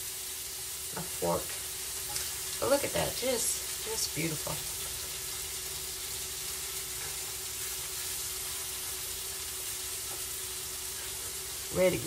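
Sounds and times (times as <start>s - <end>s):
vegetables sizzling in frying pan: 0.0s - 12.0s.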